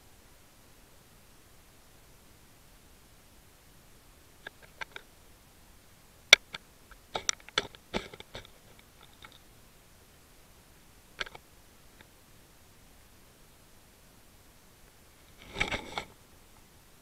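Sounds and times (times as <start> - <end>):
sharp clicks underwater: 11.2 - 11.4.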